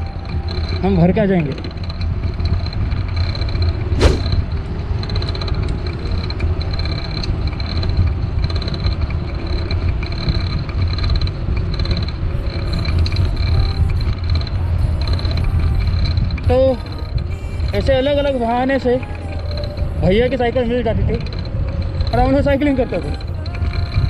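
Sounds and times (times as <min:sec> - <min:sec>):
bicycle tyres rolling on pavement: 0:00.0 - 0:24.0
wind rumble on microphone: 0:00.0 - 0:24.0
quick falling swish: 0:04.0 - 0:04.4.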